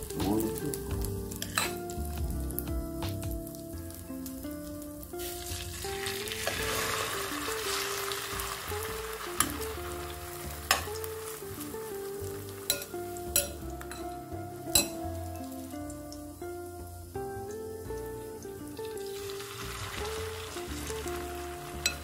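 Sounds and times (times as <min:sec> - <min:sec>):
batter sizzling in hot oil: 0:00.0 - 0:22.0
metal spoon clicking on pan: 0:10.7 - 0:11.0, 0:12.7 - 0:15.0.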